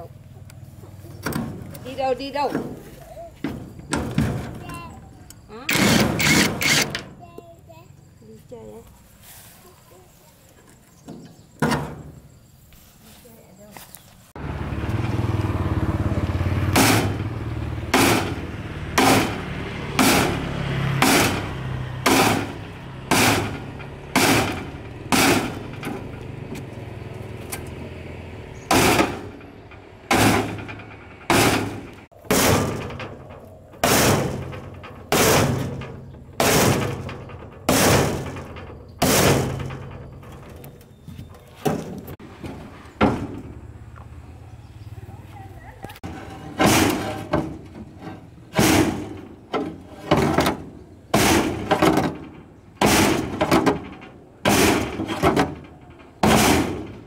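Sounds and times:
metal bar striking steel bed: 16.7s - 26.4s, 27.7s - 40.6s, 46.0s - 57.0s.

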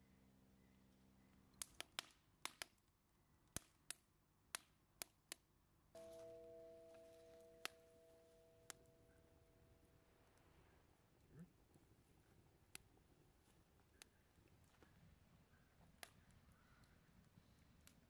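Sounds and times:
wood fire crackling and snapping: 1.6s - 2.9s, 15.7s - 18.0s
steady hum of a few notes: 6.0s - 11.4s.

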